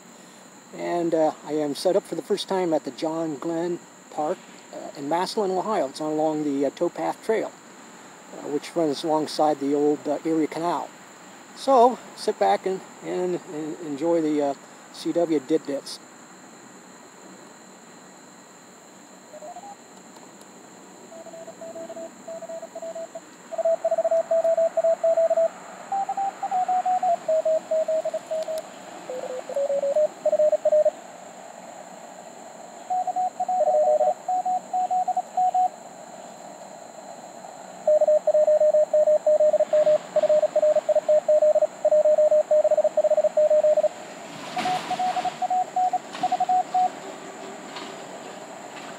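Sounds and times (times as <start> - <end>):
radio band noise hiss: 0.0 - 48.9
morse code tones: 21.1 - 30.9, 32.9 - 35.7, 37.9 - 44.0, 44.6 - 46.9.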